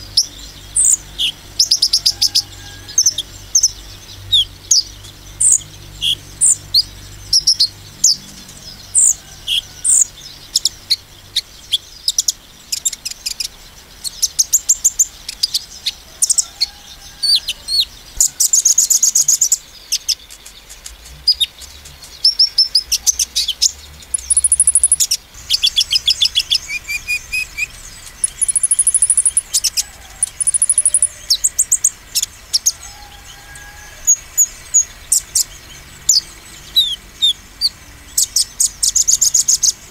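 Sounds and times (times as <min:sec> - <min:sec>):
sunbird trills and chirps: 0:00.0 - 0:39.9
clear held bird whistles: 0:24.2 - 0:25.1, 0:28.2 - 0:29.5, 0:30.2 - 0:31.2.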